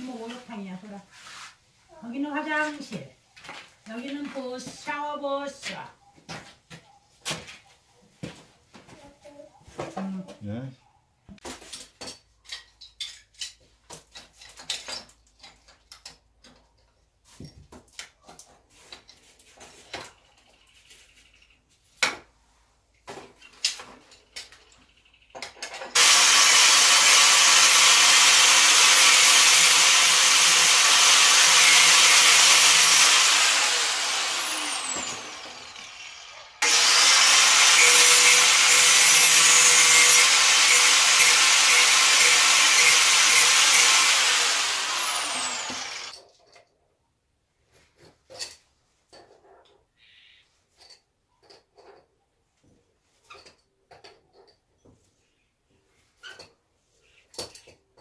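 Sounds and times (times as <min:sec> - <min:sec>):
clicks and knocks of tools: 0:11.7 - 0:17.0
handheld power tool running: 0:25.9 - 0:46.2.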